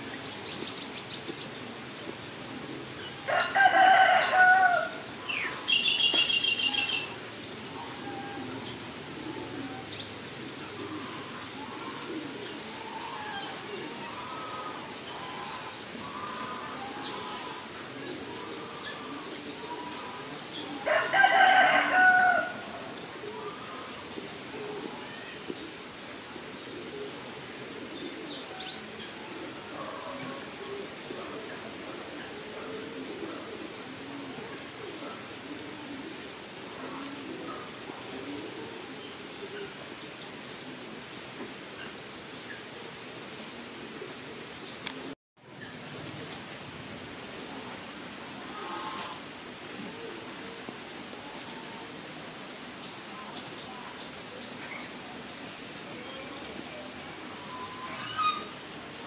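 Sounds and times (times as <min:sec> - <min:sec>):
rooster crowing: 0:03.2 - 0:05.0, 0:20.8 - 0:22.6.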